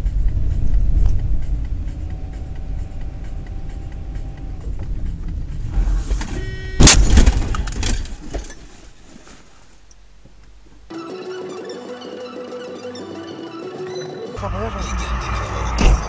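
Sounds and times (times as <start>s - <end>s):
car rumbling on road: 0.0s - 9.0s, 14.4s - 16.0s
car crash with crunching: 5.7s - 8.8s.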